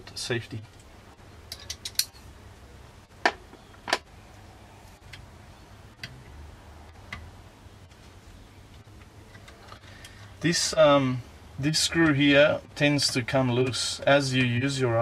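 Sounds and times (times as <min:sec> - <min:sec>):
sharp metal clicks: 0:01.5 - 0:02.2.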